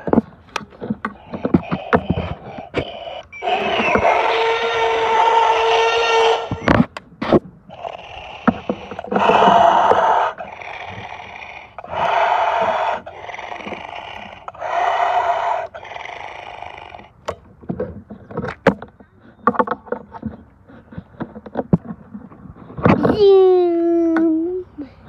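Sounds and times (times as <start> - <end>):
toy dinosaur roars: 1.2 - 6.7, 7.7 - 17.1
quiet growling: 7.7 - 17.2.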